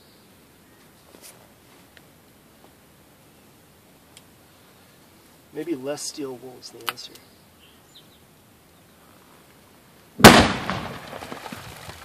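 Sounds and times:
sharp explosion bang: 10.2 - 11.4.

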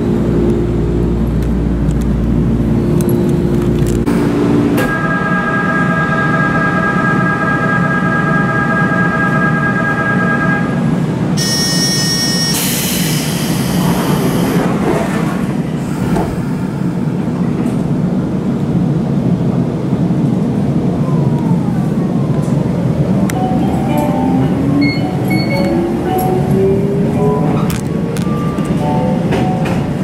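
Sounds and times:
train interior hum: 0.0 - 30.0
departure buzzer: 11.4 - 12.8.

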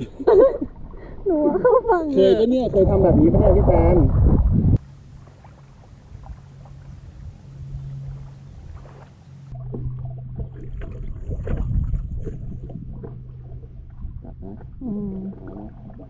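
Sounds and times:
water lapping against boat: 3.6 - 16.0
steady low hum: 4.4 - 16.0.

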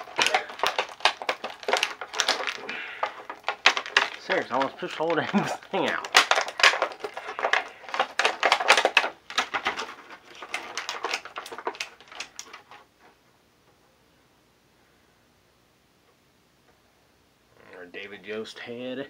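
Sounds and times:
plastic packaging crinkling: 0.0 - 12.9.

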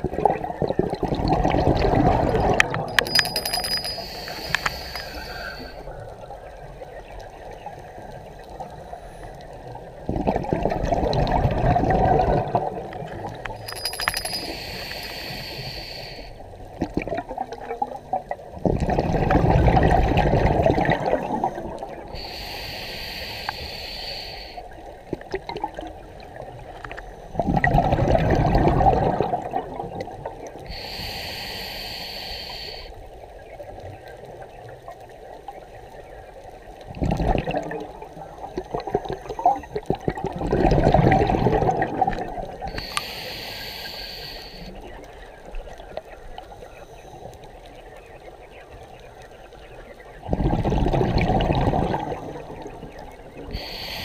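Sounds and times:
exhaust bubbles underwater: 0.0 - 2.9, 10.0 - 13.5, 16.8 - 22.2, 27.3 - 30.7, 36.9 - 42.8, 50.2 - 53.8
regulator hissing: 3.1 - 5.8, 13.7 - 16.4, 22.2 - 24.6, 30.7 - 32.9, 42.7 - 44.7, 53.6 - 54.0.

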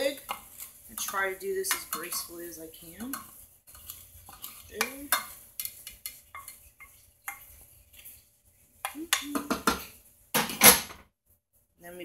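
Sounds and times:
wooden spoon knocking metal pan: 8.8 - 11.0.

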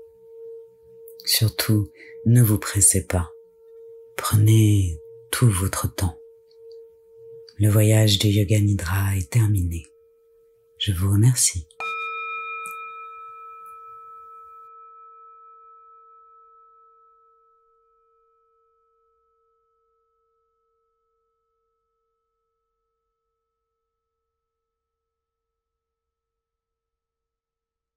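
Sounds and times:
bell ringing: 11.8 - 16.0.

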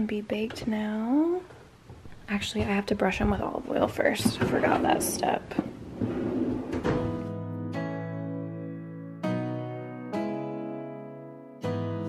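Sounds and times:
soft instrumental chords: 7.1 - 12.0.

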